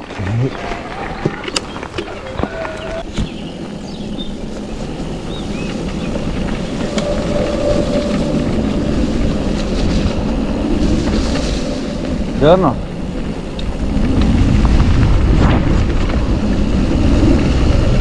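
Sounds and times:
bike rattling: 0:00.0 - 0:18.0
bike tyres rolling on gravel: 0:00.0 - 0:18.0
faint steady whine: 0:06.7 - 0:13.8.

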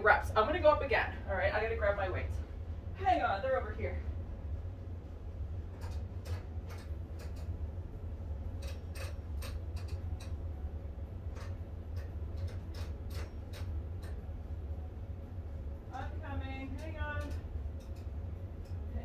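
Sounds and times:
low steady hum: 0:00.0 - 0:19.0
dumbbells clicking and clinking: 0:08.6 - 0:10.4, 0:11.3 - 0:14.2.

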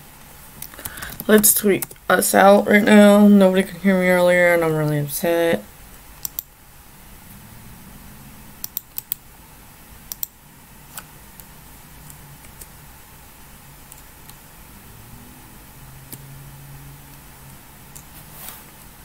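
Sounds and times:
low room hum: 0:00.0 - 0:19.0
computer keys clicking: 0:06.2 - 0:06.5, 0:08.6 - 0:09.2, 0:10.1 - 0:12.7.

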